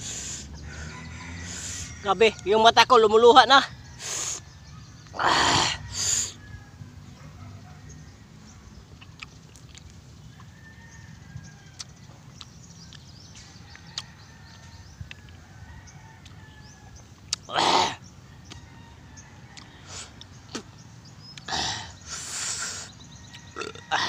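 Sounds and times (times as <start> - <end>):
loud sharp breath: 0.0 - 1.9.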